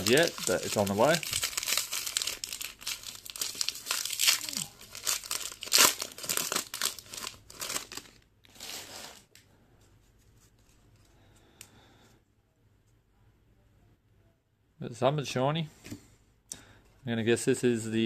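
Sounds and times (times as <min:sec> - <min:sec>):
foil pack tearing and crinkling: 0:00.0 - 0:09.2.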